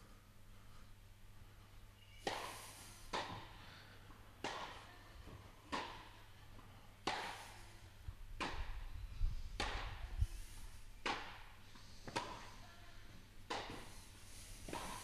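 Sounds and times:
tennis ball hit by racquets: 2.2 - 8.9, 9.5 - 12.6, 13.4 - 15.0.

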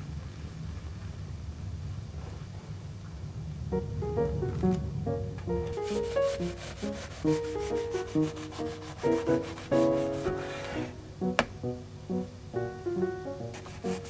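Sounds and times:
soft piano music: 3.3 - 14.0
knife sawing through bread: 8.2 - 10.9.

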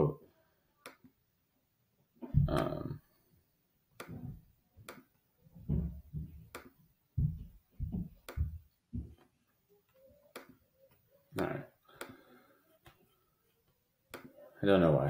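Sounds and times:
soft low thumps: 2.2 - 2.8, 5.6 - 6.6, 7.2 - 9.2.

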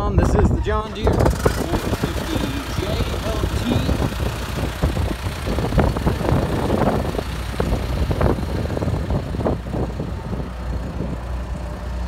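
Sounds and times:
uneven rattling: 0.4 - 9.8
dozer diesel engine droning: 0.4 - 12.0.

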